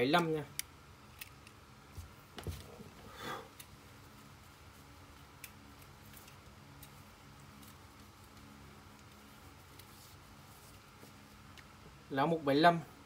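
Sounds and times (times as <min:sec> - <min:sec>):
steady low hum: 0:00.0 - 0:13.0
eyeglasses rustle: 0:01.0 - 0:11.8.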